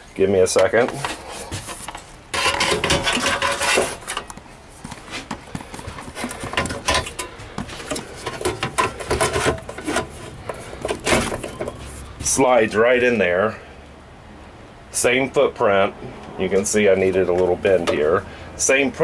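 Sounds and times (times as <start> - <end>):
metal scraping on metal: 0.8 - 4.3, 6.0 - 12.1
metal clanks and knocks: 2.3 - 4.4, 5.6 - 11.9.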